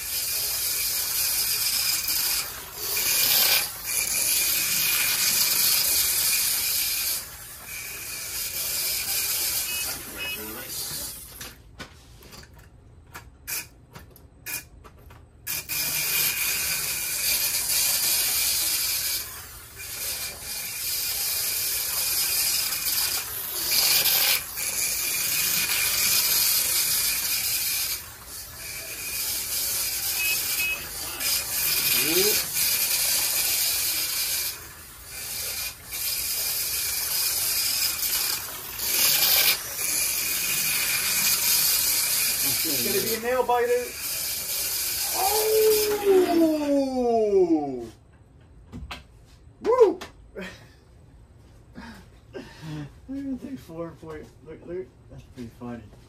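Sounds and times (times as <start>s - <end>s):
slot car motors buzzing: 0.0s - 11.3s, 15.5s - 45.9s.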